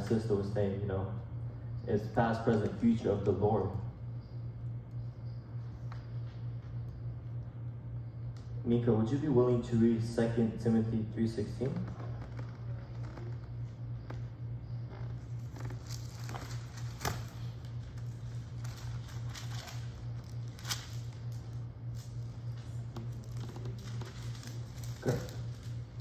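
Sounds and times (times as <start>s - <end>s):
steady low hum: 0.0s - 26.0s
paper pages rustling: 15.5s - 22.2s, 23.1s - 25.8s.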